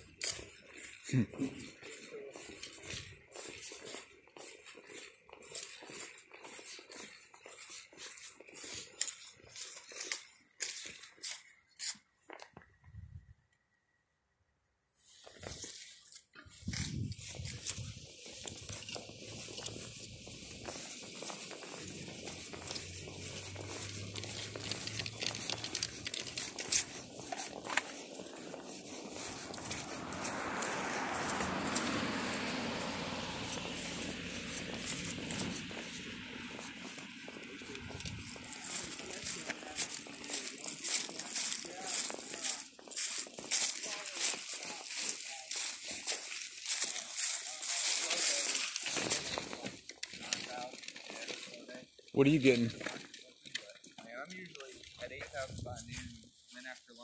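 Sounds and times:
footsteps crunching through leaves: 0.0s - 12.4s, 15.0s - 57.0s
measuring wheel clicking: 16.7s - 32.0s.

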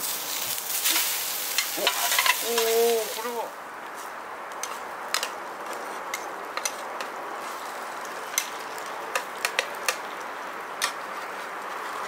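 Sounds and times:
food sizzling on grill plate: 0.0s - 3.5s
metal spatulas scraping and tapping: 0.8s - 2.8s, 4.6s - 5.3s.

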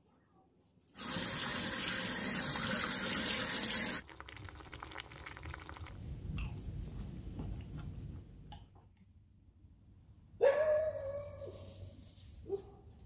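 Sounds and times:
tap water rushing: 1.0s - 5.8s
soup bubbling in a pot: 3.6s - 6.3s.

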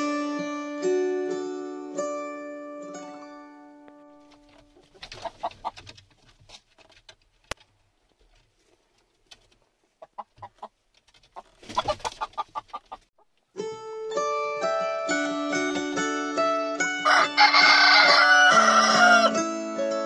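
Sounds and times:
hens clucking: 4.7s - 5.9s, 10.0s - 13.3s.

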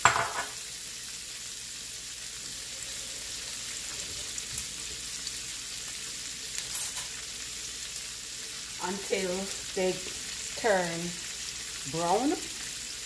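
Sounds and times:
sausage sizzling in a frying pan: 0.0s - 13.0s.

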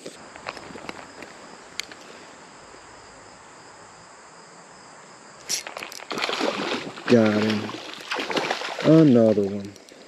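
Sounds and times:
crickets chirring: 0.0s - 10.0s
quiet creek: 0.0s - 10.0s
fish splashing at water surface: 5.5s - 9.4s.

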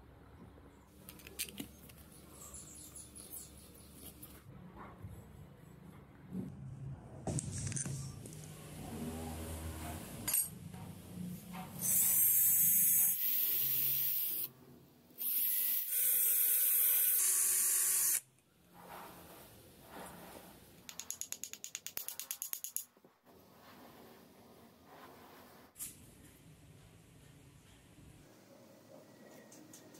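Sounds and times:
electric drill running: 15.2s - 18.2s.

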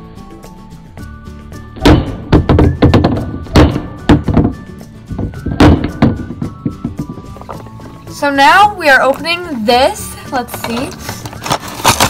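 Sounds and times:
background music: 0.0s - 12.0s
toy figures dropping on wood: 1.8s - 7.8s.

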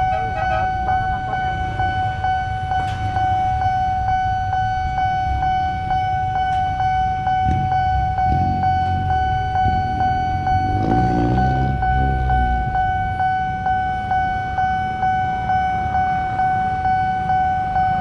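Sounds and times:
level crossing bell ringing: 0.0s - 5.8s
low rumble of vehicle engines: 0.0s - 18.0s.

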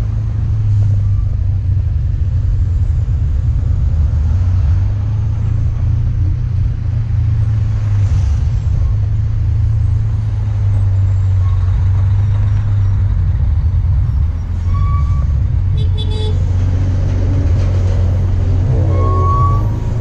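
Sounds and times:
motorcycle engine drone: 0.0s - 20.0s.

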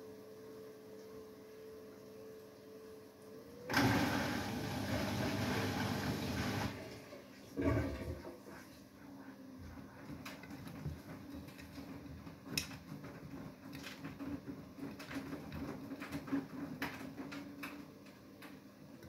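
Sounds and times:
washing machine motor whine: 0.0s - 8.7s
water and laundry tumbling in drum: 3.7s - 8.7s, 9.6s - 19.0s.

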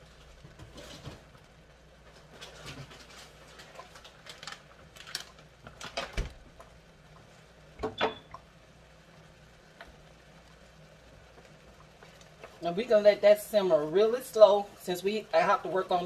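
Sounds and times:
vegetables sizzling in oil: 6.4s - 16.0s.

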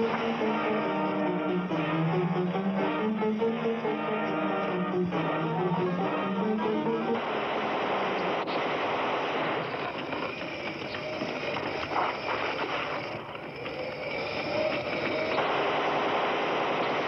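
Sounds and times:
automatic gunfire: 7.2s - 12.8s, 15.4s - 17.0s.

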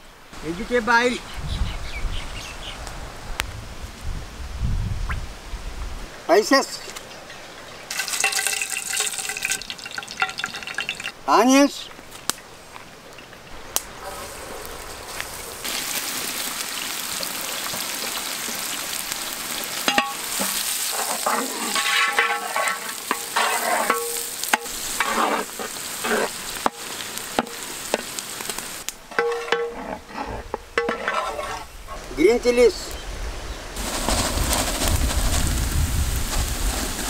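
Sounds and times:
onions sizzling in hot oil: 6.9s - 11.2s, 13.7s - 29.8s, 33.8s - 37.0s.

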